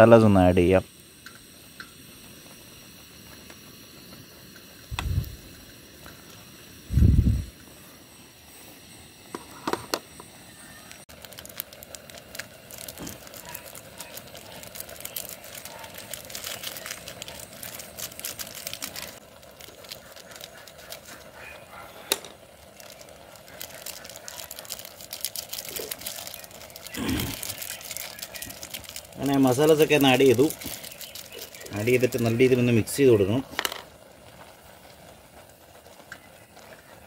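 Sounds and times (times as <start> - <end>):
foil sachet crinkling: 10.7 - 37.0.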